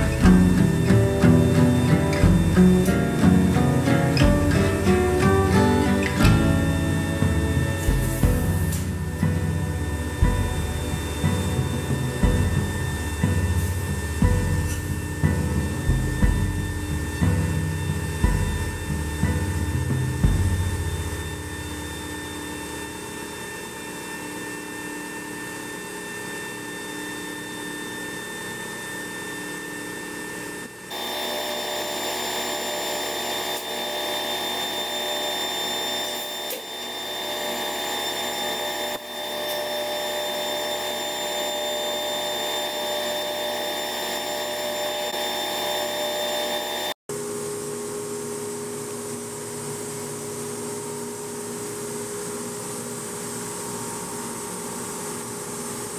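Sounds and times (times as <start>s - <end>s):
machine mechanical hum: 0.0s - 55.9s.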